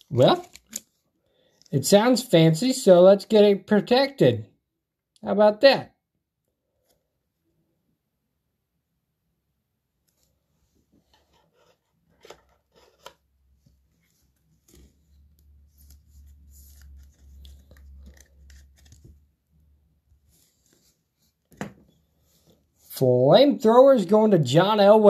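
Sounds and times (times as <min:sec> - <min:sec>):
cards sliding and rubbing: 0:10.1 - 0:19.3, 0:20.2 - 0:21.4
trading cards clicking and snapping: 0:16.7 - 0:19.2.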